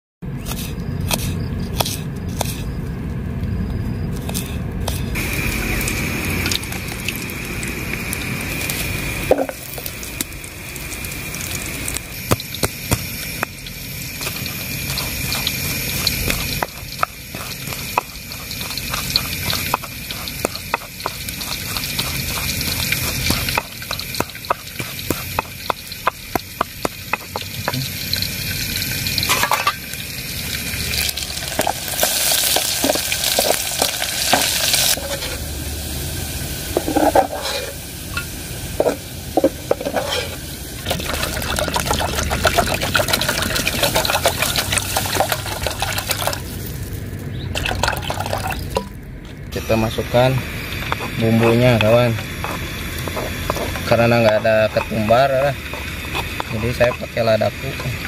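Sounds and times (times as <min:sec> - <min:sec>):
knife cuts: 0:00.4 - 0:02.7, 0:04.2 - 0:05.2
stone pestle knocking in mortar: 0:16.0 - 0:27.9.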